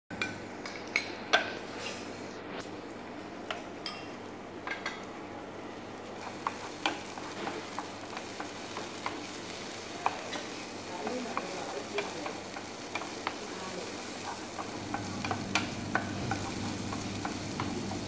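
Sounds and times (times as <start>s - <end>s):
vegetables sizzling in a pan: 4.8s - 18.0s.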